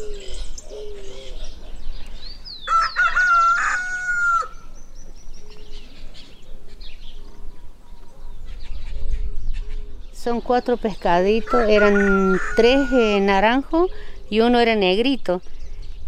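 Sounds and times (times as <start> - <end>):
bird hooting: 0.0 - 1.8
small birds chirping: 0.0 - 16.0
rooster crowing: 2.6 - 4.6, 11.4 - 13.2.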